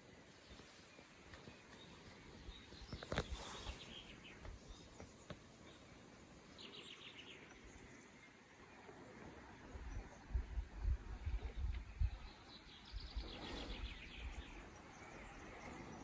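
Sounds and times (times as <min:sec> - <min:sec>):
bird chirps and trills: 0:09.8 - 0:16.0.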